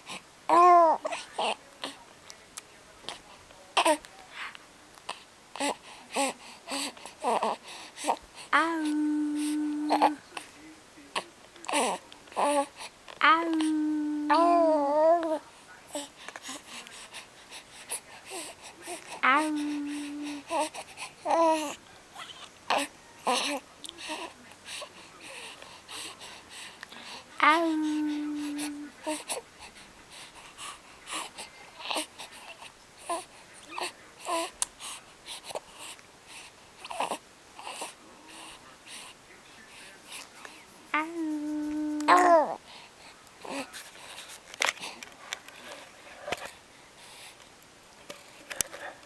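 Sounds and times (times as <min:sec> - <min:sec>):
baby cooing and babbling: 0:00.5 - 0:01.6, 0:05.6 - 0:10.2, 0:11.7 - 0:15.4, 0:18.3 - 0:24.3, 0:27.0 - 0:29.4, 0:36.8 - 0:37.9, 0:40.9 - 0:42.6.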